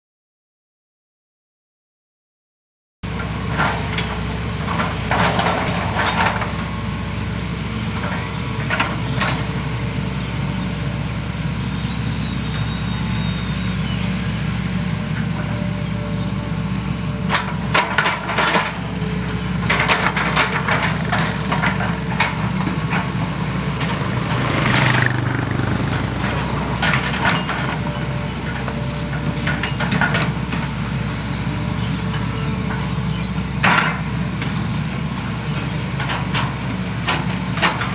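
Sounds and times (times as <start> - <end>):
excavator diesel engines: 3.0 - 37.9
metal clanks and scrapes: 4.7 - 6.6, 17.3 - 25.1, 25.9 - 30.7
high squeal: 10.2 - 16.8, 31.4 - 37.6.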